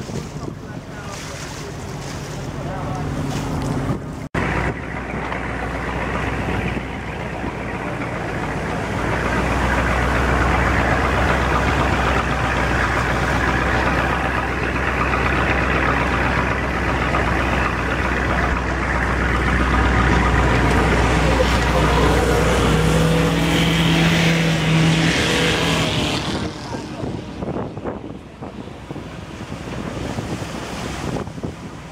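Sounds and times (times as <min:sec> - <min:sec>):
boat engine humming: 0:00.0 - 0:31.9
water splashing along hull: 0:00.0 - 0:31.9.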